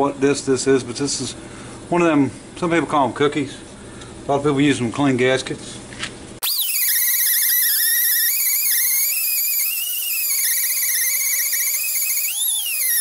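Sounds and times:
die grinder high whine: 6.4 - 13.0.

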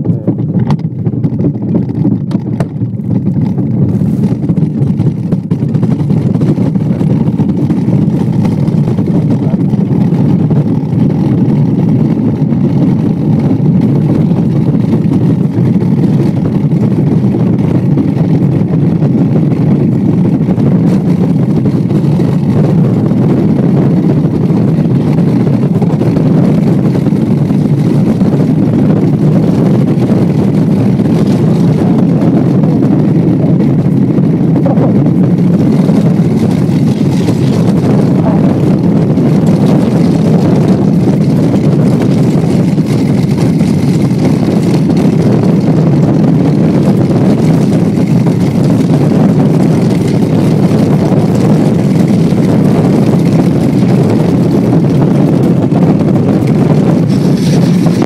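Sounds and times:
sled runners rumbling on ice: 0.0 - 58.0
rushing air: 3.3 - 58.0.

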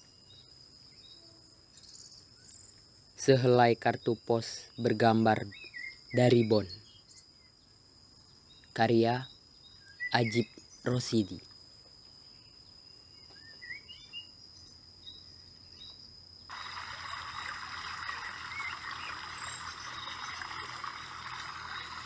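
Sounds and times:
bird chirps: 0.0 - 11.4, 12.2 - 22.0
dense chorus-like hiss: 0.0 - 13.2, 14.0 - 22.0.

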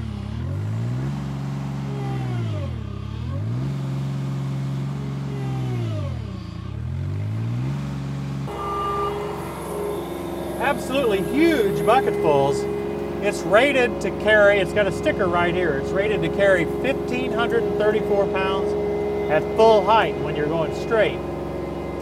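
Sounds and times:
loader diesel engine under load: 0.0 - 22.0
steady higher tone: 8.5 - 22.0.

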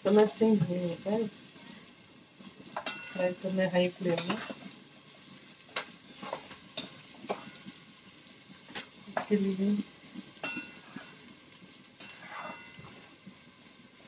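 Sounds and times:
onions sizzling in a pot: 0.0 - 14.0
spatula scraping a pot: 10.3 - 11.3, 12.0 - 13.2.

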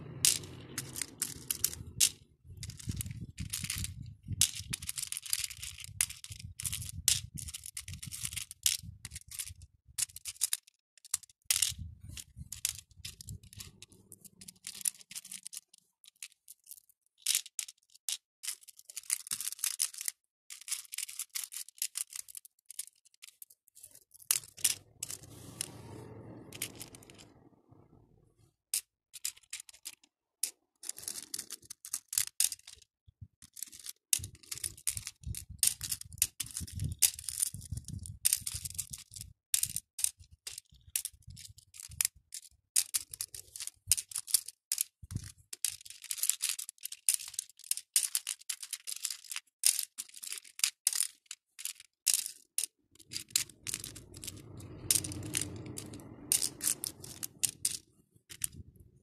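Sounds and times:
low rubbing of beads: 0.0 - 5.4, 11.6 - 15.6, 23.8 - 28.6, 52.9 - 59.0
plastic beads clicking and rattling: 0.0 - 28.0, 28.7 - 59.0.

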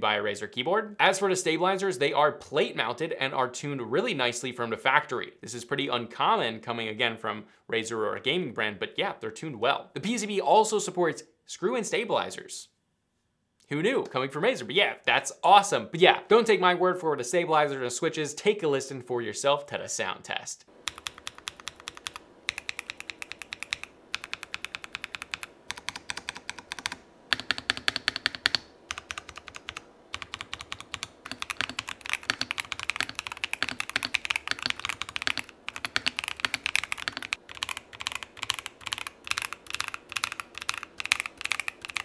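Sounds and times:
mechanical keyboard typing: 20.8 - 42.0.

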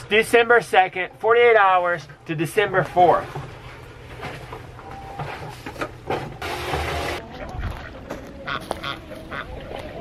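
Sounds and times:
ducks quacking: 6.5 - 10.0.

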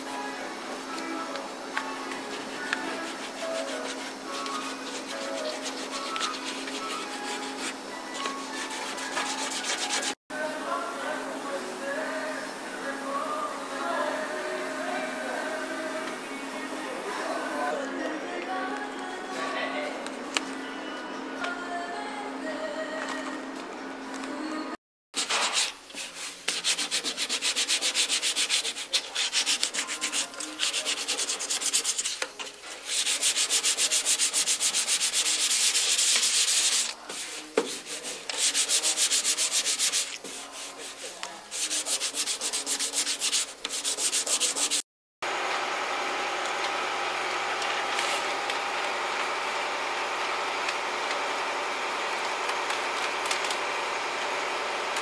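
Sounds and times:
sandpaper rubbing on metal: 2.2 - 10.2, 25.2 - 44.8.

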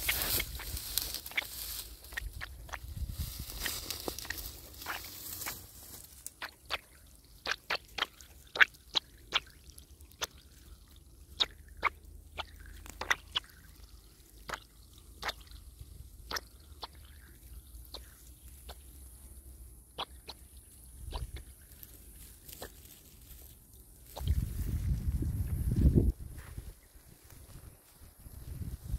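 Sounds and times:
water drops plinking into puddle: 6.4 - 18.8.

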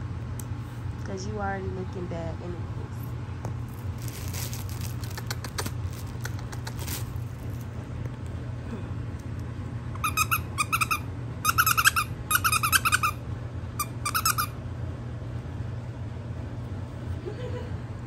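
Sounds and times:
dog toy squeaking: 10.0 - 13.2, 13.8 - 14.5.

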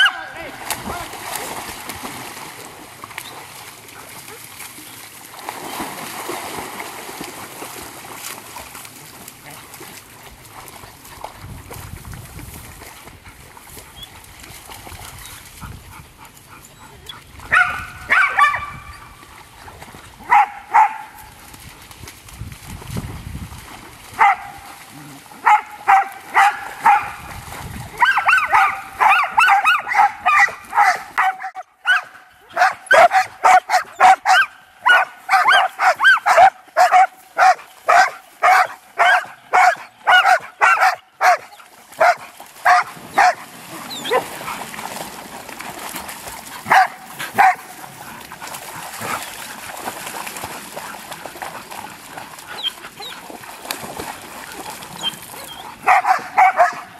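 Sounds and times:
dog barking: 0.0 - 0.3, 17.5 - 18.8, 20.3 - 21.2, 24.2 - 24.6, 25.4 - 27.2, 28.0 - 43.4, 46.7 - 47.6, 55.8 - 56.9.

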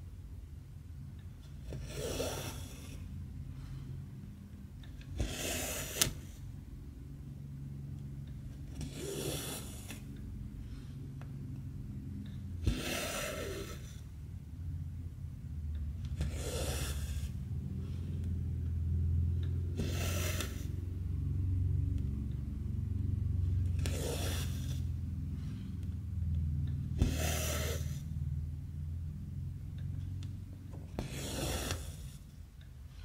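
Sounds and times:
low steady rumble: 0.0 - 33.0
thread rasping through fabric: 19.8 - 20.8, 30.7 - 32.3.

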